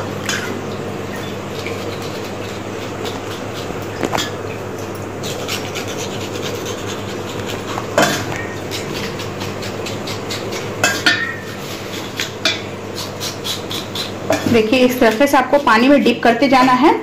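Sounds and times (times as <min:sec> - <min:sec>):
knife rasping skin: 0:01.5 - 0:04.4, 0:05.2 - 0:12.3, 0:12.9 - 0:15.2.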